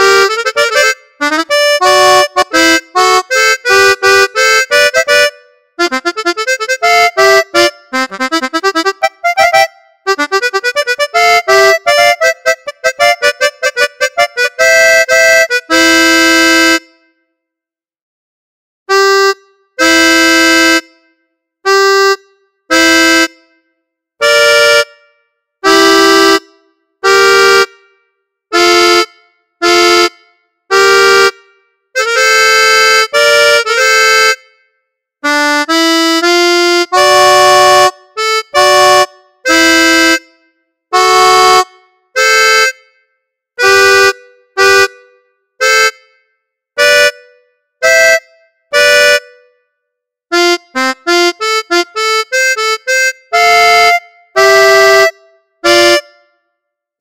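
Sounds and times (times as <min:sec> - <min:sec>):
accordion chords and notes: 0:00.0 - 0:17.3, 0:18.9 - 0:57.0.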